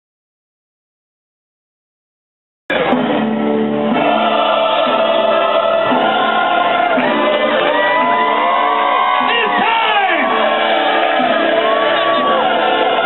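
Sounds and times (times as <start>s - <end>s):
choir singing held chords: 2.9s - 13.0s.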